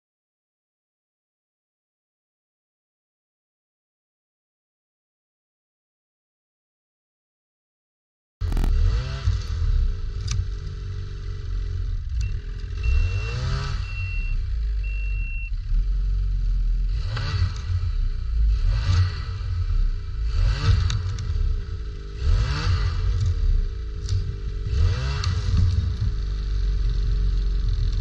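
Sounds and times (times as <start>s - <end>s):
snowmobile engine revving: 8.4s - 28.0s.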